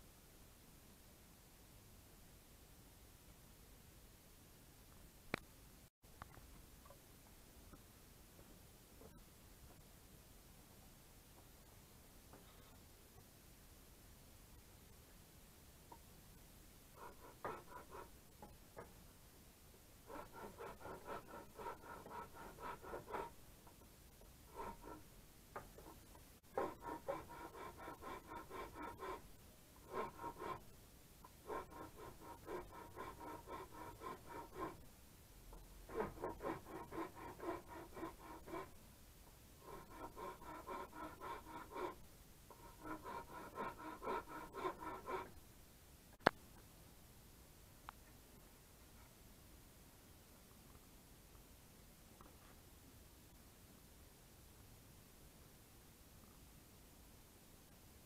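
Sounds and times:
rotary tool cutting wood: 17.0s - 18.1s, 20.1s - 23.4s, 24.5s - 25.1s, 26.5s - 30.7s, 31.4s - 34.8s, 35.9s - 38.8s, 39.6s - 45.4s.

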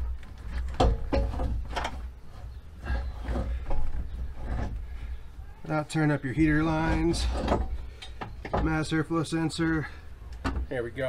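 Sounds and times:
metal part clunking and scraping: 0.3s - 5.1s, 6.6s - 9.0s.

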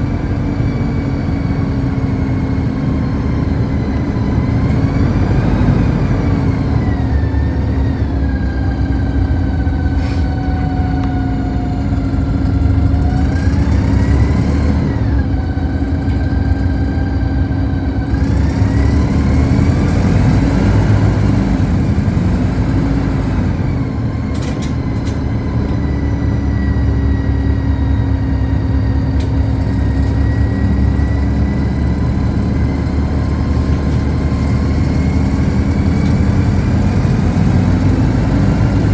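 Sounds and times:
bus drivetrain drone and whine: 0.0s - 38.9s.

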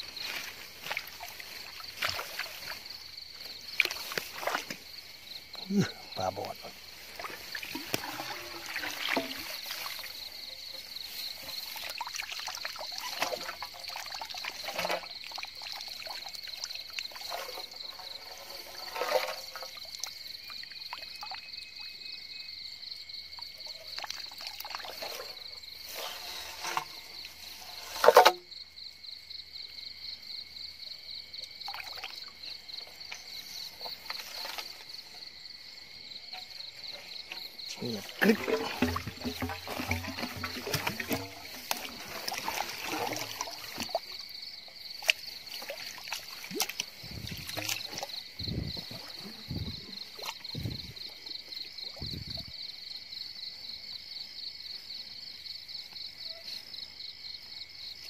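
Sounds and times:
rustling in wet grass: 0.0s - 20.6s, 23.8s - 28.4s, 31.6s - 35.3s, 36.0s - 51.3s
water splashing and trickling: 0.0s - 28.9s, 29.7s - 52.7s
frogs and insects trilling: 0.0s - 58.0s.

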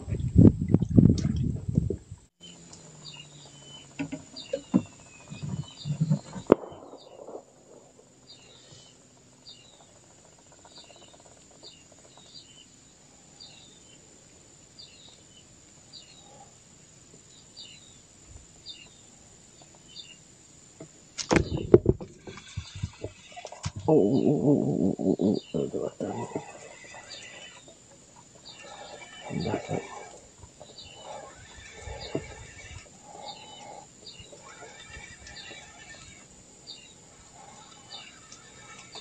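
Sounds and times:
high insect drone: 2.4s - 39.0s
knocks and thumps: 21.2s - 23.9s.

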